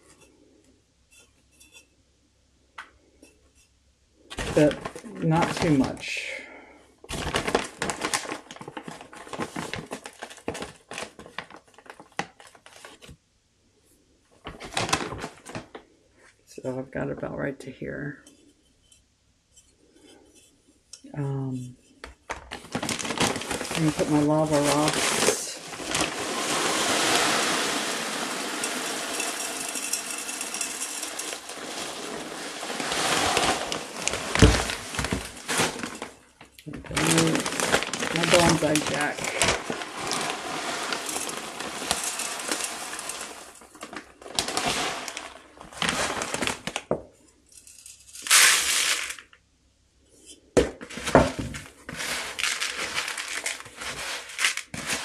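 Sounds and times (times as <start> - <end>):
grit trickling into plastic pot: 4.3 - 6.4, 7.1 - 12.9, 21.0 - 47.1, 47.8 - 49.4, 50.8 - 55.0
plastic bag crinkling: 4.3 - 6.4, 7.1 - 13.0, 14.5 - 15.8, 22.3 - 47.0, 48.1 - 49.4, 50.8 - 55.0
soil being scooped: 23.2 - 36.2, 36.9 - 46.6, 51.9 - 55.0.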